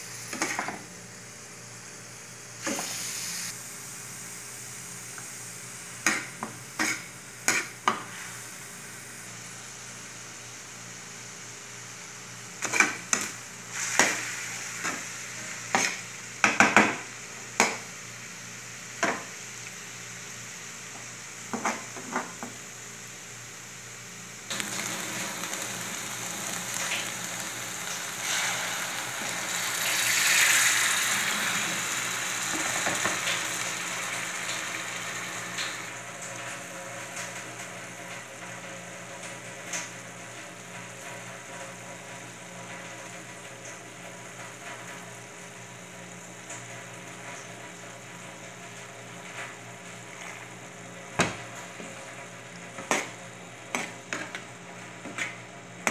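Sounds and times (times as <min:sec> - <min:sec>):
food sizzling in pan: 0:00.0 - 0:55.9
stirring scrapes and taps: 0:06.0 - 0:08.1, 0:15.7 - 0:16.0, 0:52.7 - 0:55.9.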